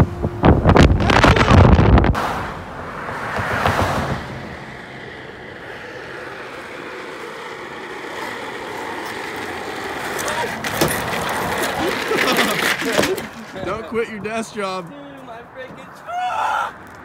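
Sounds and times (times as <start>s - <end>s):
car wind and road noise: 0.0s - 17.0s
chair casters rolling on asphalt: 5.0s - 17.0s.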